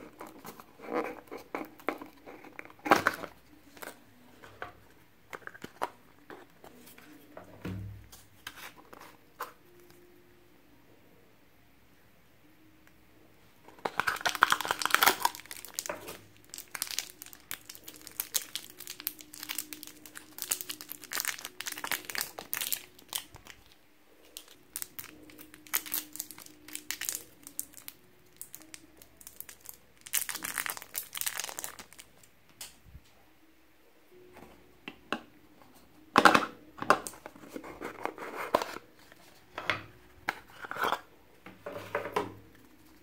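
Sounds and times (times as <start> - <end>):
plastic wrapping crinkling: 13.7 - 32.3.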